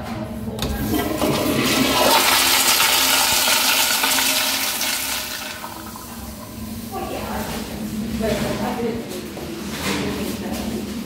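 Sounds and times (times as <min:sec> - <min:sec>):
toilet flushing: 0:00.6 - 0:07.8.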